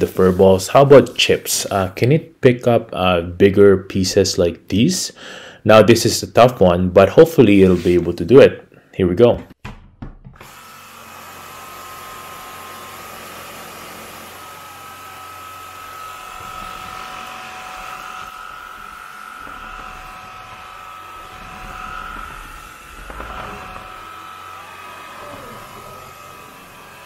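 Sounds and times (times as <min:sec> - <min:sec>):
stick vacuum running: 0:10.4 - 0:27.0.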